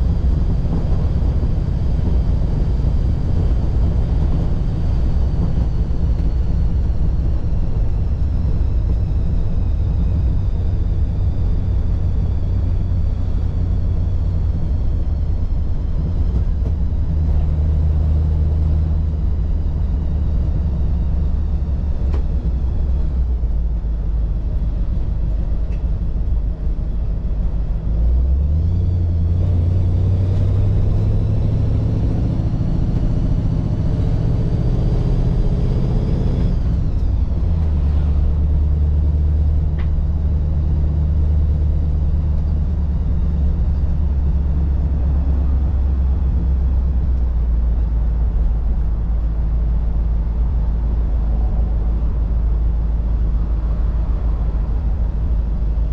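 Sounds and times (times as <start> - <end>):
car engine running: 0.0 - 55.9
low road rumble: 0.0 - 55.9.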